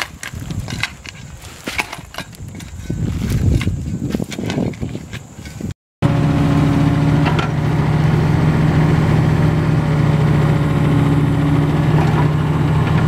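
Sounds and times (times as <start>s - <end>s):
mini excavator diesel engine running: 6.0s - 13.0s.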